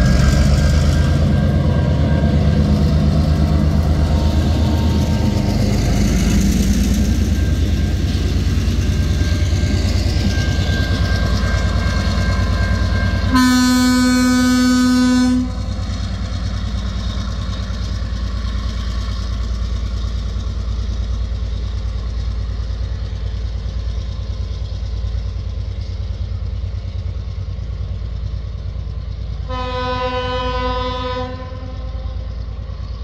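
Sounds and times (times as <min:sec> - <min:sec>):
diesel locomotive rumble: 0:00.0 - 0:33.0
locomotive horn chord: 0:13.3 - 0:15.6, 0:29.5 - 0:32.1.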